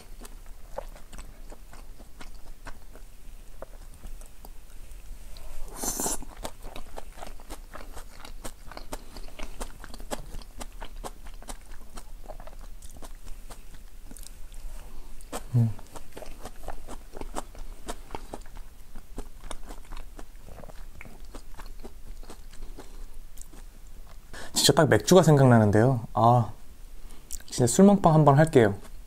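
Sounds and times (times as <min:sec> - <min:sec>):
person chewing food: 0:00.0 - 0:24.5, 0:27.0 - 0:27.5
wet mouth clicks: 0:05.7 - 0:14.4, 0:27.3 - 0:27.5.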